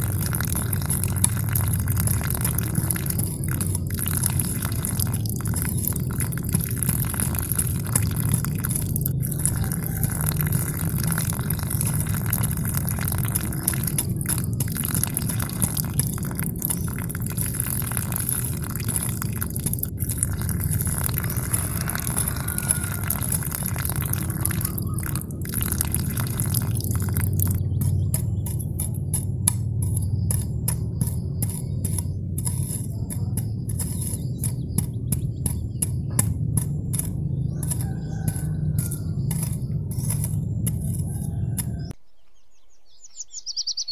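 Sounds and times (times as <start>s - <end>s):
water stream splashing into pool: 0.0s - 29.3s.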